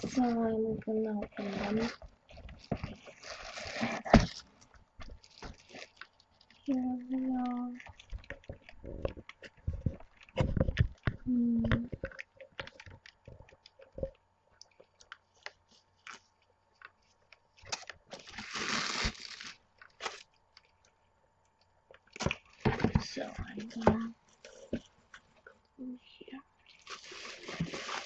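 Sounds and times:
tissue paper crinkling: 0.0 - 8.9, 14.9 - 20.4, 26.6 - 28.0.

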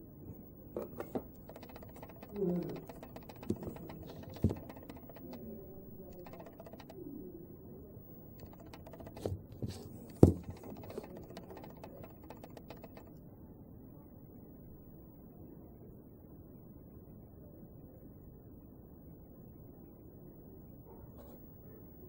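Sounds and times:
small clicks and knocks: 0.8 - 7.0, 8.3 - 13.2.

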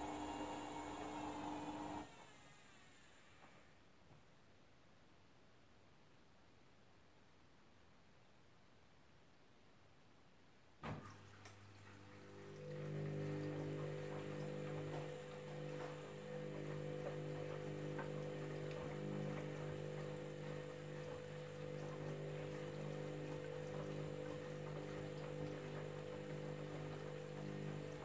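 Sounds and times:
washing machine hum: 0.0 - 3.8, 10.8 - 28.0
faint water noise: 10.8 - 28.0.

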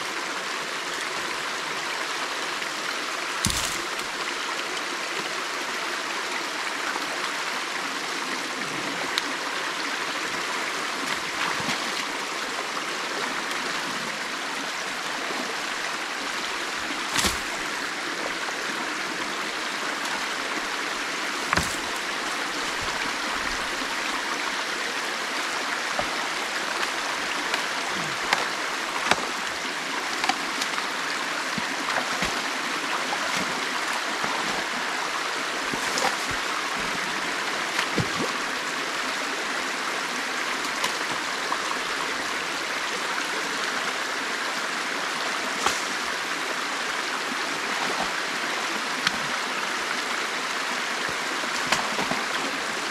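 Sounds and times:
creek water flowing: 0.0 - 52.9.

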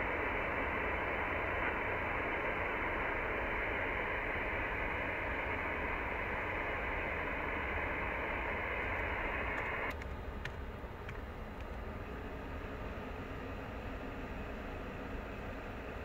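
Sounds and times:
radio receiver hiss: 0.0 - 16.0
sharp clicks: 8.9 - 11.8.

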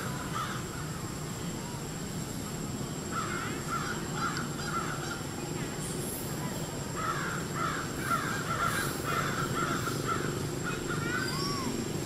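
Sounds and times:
low background noise: 0.0 - 12.0
high wavering animal calls: 3.6 - 12.0
arched animal call: 8.0 - 11.8.

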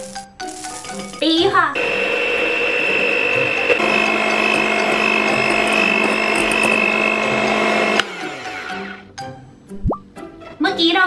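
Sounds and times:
electric hand mixer whipping cream: 1.8 - 9.0.

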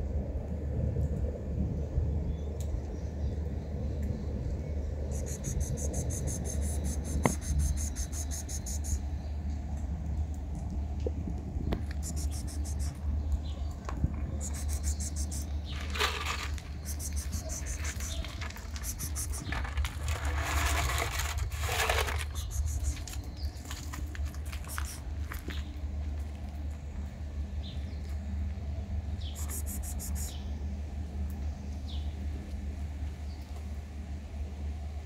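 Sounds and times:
steady low rumble: 0.0 - 35.0
insects chirping: 5.0 - 9.1, 14.4 - 19.8
dry food poured onto asphalt: 15.7 - 25.4.

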